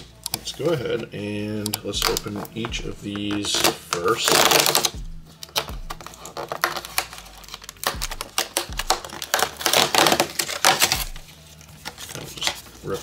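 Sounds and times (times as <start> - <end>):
cardboard tearing and crackling: 3.2 - 13.0.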